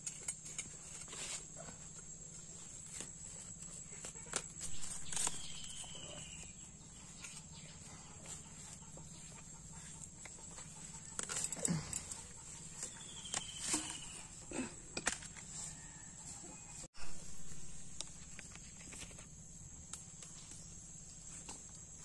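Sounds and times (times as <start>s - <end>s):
plants rustling: 0.0s - 16.0s.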